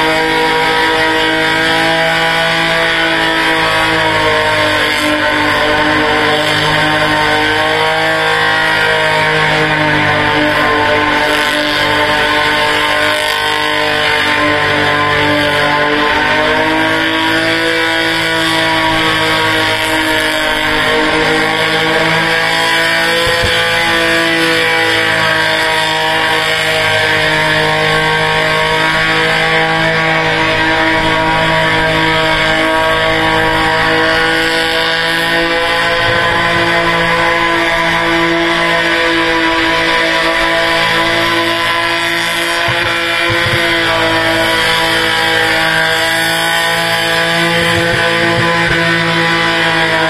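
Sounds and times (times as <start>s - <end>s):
car engine at high revs: 0.0s - 50.0s
rock music with electric guitar: 23.1s - 24.6s.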